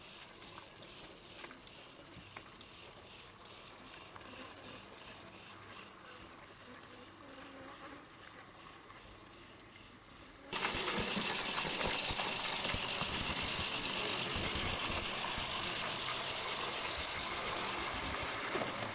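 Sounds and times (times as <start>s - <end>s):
model train motor whirring: 0.0s - 6.3s, 10.5s - 18.9s
wheels clicking on rails: 10.6s - 18.9s.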